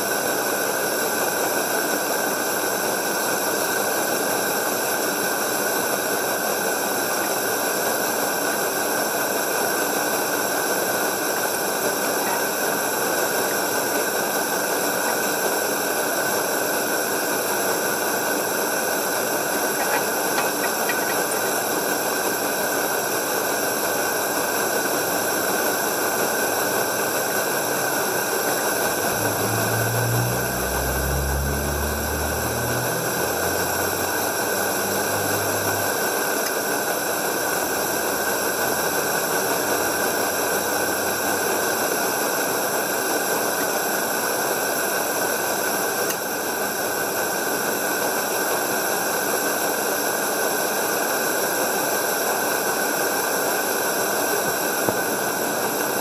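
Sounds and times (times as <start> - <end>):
gas lantern hissing: 18.8 - 41.8.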